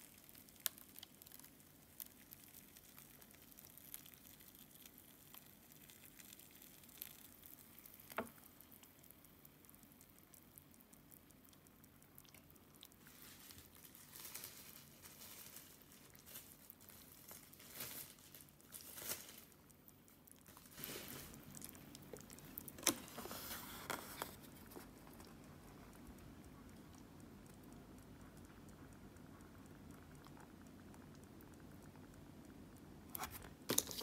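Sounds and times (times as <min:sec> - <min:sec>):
paper packaging crinkling: 0:13.1 - 0:19.6, 0:22.6 - 0:25.2, 0:33.2 - 0:34.0.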